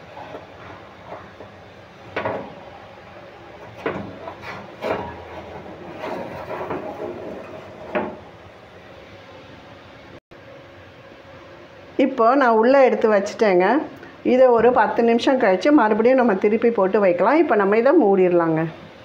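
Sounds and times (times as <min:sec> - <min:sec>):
wire rack scraping on oven rails: 0:00.0 - 0:08.6.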